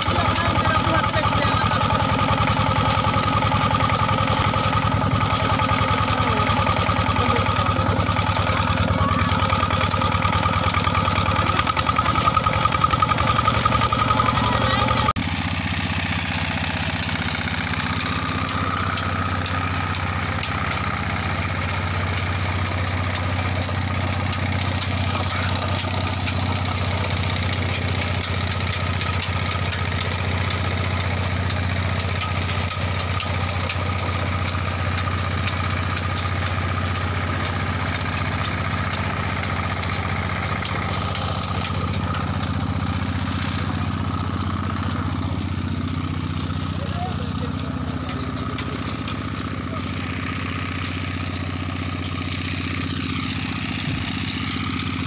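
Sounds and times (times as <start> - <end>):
small engine running steadily: 0.0 - 55.0.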